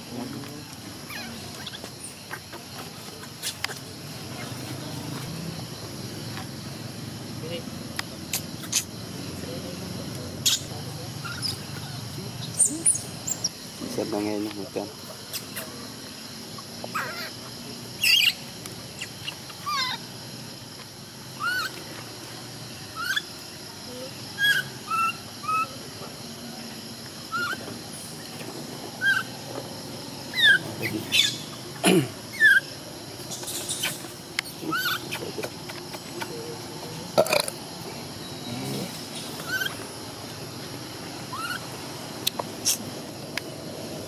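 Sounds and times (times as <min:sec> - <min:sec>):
high-pitched chirping calls: 0:08.3 - 0:09.0, 0:10.4 - 0:13.6, 0:18.0 - 0:20.0, 0:30.3 - 0:31.6, 0:32.3 - 0:36.4, 0:39.0 - 0:39.9, 0:41.2 - 0:41.7.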